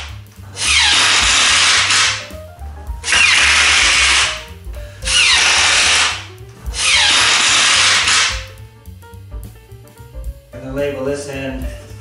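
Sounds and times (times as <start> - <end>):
background music: 0.0 - 12.0
power drill driving screws: 0.6 - 2.2, 3.1 - 4.4, 5.1 - 6.2, 6.8 - 8.4.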